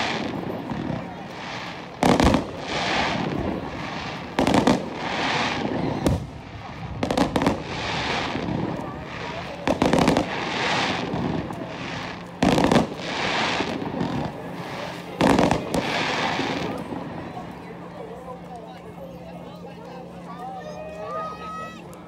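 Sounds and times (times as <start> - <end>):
fireworks hiss: 0.0 - 17.0
fireworks bursting with bangs: 0.0 - 17.5.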